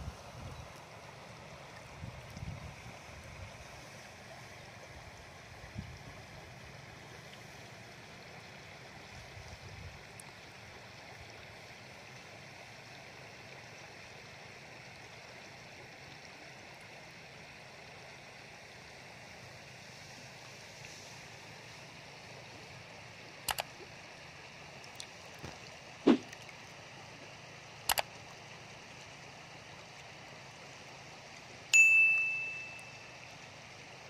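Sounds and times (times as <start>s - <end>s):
river water rippling over pebbles: 0.0s - 34.0s
wind buffeting microphone: 2.0s - 3.4s.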